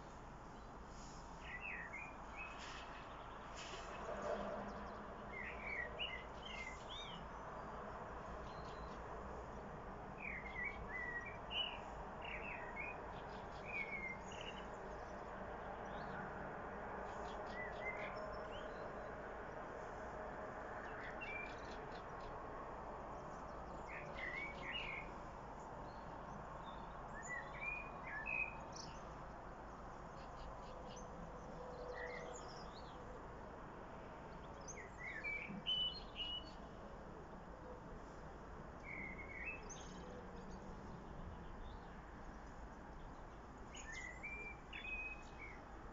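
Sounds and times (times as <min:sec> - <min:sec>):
faint background noise: 0:00.0 - 0:45.9
blackbird singing: 0:01.4 - 0:02.6, 0:05.3 - 0:07.2, 0:10.2 - 0:14.7, 0:17.4 - 0:18.8, 0:23.6 - 0:25.1, 0:26.6 - 0:29.1, 0:31.9 - 0:33.0, 0:34.6 - 0:36.6, 0:38.8 - 0:40.6, 0:43.7 - 0:45.6.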